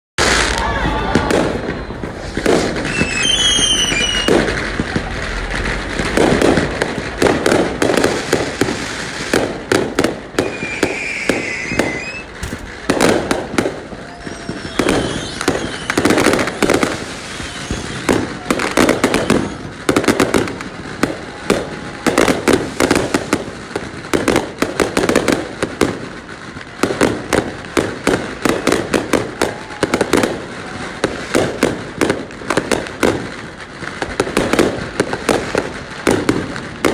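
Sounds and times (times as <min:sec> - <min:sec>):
falling firework whistles: 0:00.2 - 0:06.7, 0:07.8 - 0:26.0, 0:26.6 - 0:33.4
fireworks bangs and crackles: 0:00.2 - 0:36.9.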